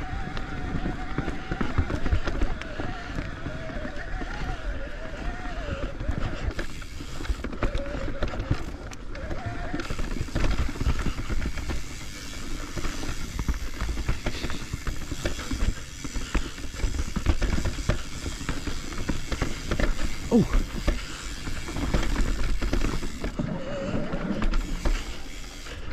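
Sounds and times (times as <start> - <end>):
bike tyres rumbling on dirt: 0.0 - 25.9
bike chain clattering: 9.8 - 23.4.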